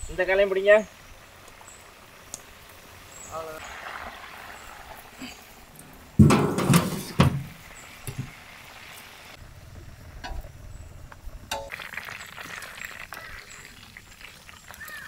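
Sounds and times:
metal platter clattering: 0:06.2 - 0:07.5.

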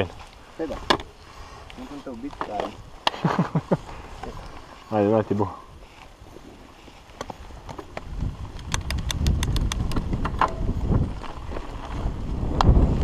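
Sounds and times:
bike rattles and clicks: 0:00.0 - 0:05.0, 0:06.9 - 0:13.0
bike tyres rumbling on grass: 0:00.0 - 0:13.0
wind on microphone: 0:05.4 - 0:13.0.

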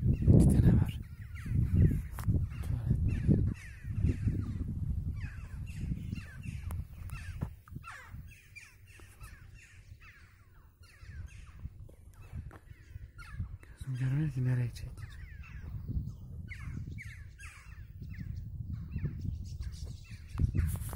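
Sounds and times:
birds calling: 0:00.0 - 0:20.9
wind on microphone: 0:00.0 - 0:20.9
microphone handling noise: 0:01.6 - 0:07.9, 0:19.6 - 0:20.9.

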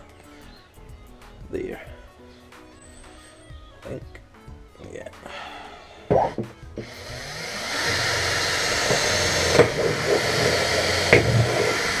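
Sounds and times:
drill bit knocking in panel: 0:06.1 - 0:12.0
cordless drill drilling: 0:06.3 - 0:12.0.

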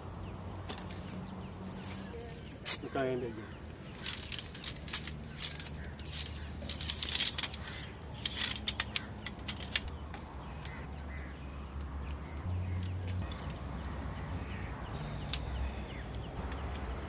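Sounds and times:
metal camp stand clicking and rattling: 0:03.9 - 0:10.8.

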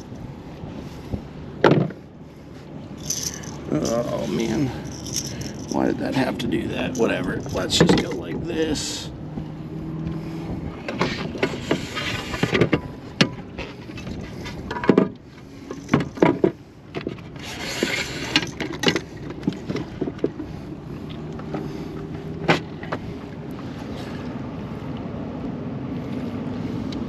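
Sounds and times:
rustling: 0:03.0 - 0:05.8.

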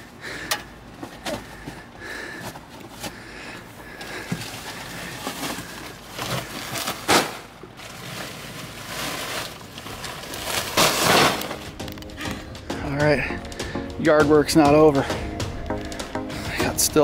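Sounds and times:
plastic sacks rustling: 0:04.0 - 0:13.9.

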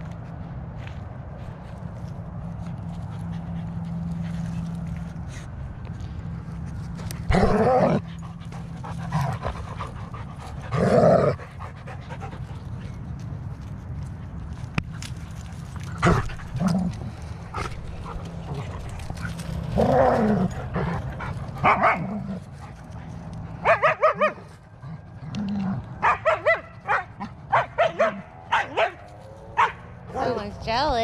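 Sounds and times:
dogs barking and yipping: 0:15.0 - 0:25.2, 0:25.9 - 0:30.6.

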